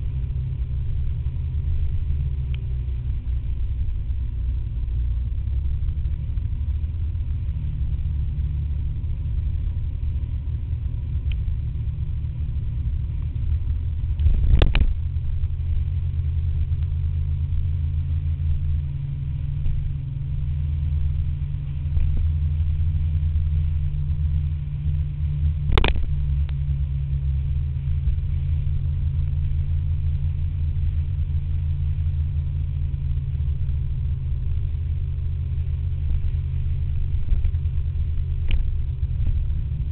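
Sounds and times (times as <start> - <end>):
wind rumble on microphone: 0.0 - 39.9.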